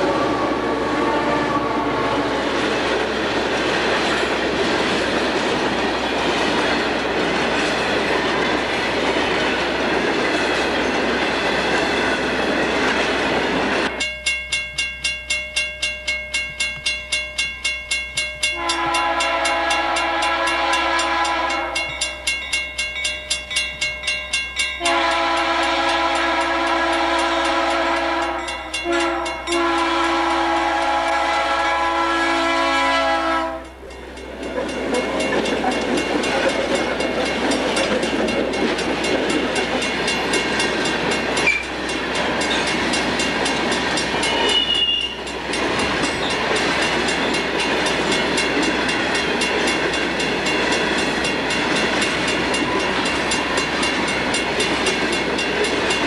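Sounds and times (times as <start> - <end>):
locomotive air horn blasts: 0.0 - 2.5, 18.5 - 21.9, 24.8 - 33.8, 44.3 - 45.2
train wheels rumbling and clattering: 0.0 - 56.0
bell ringing: 13.9 - 26.5, 28.2 - 29.8, 33.6 - 56.0
high flange squeal: 44.2 - 45.3.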